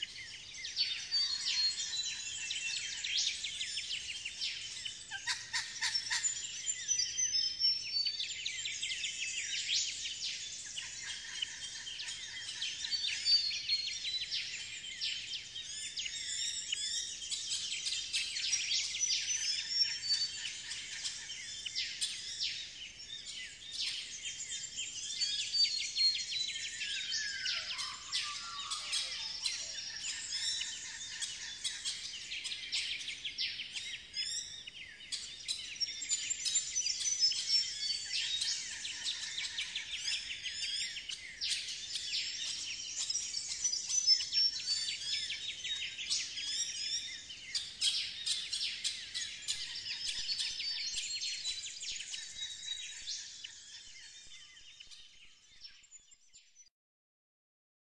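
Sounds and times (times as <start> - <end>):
birds chirping and trilling: 0.0 - 56.7.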